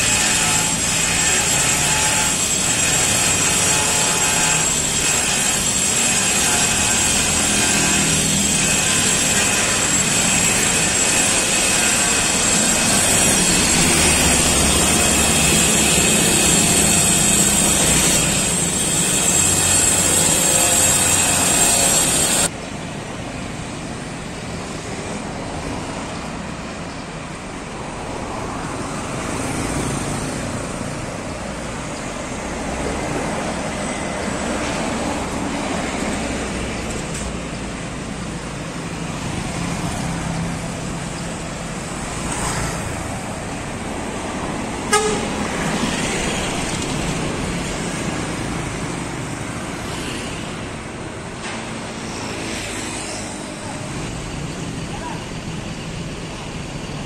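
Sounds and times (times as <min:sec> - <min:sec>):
bus driving past: 0:24.4 - 0:57.0
cars and motorbikes passing: 0:24.4 - 0:57.0.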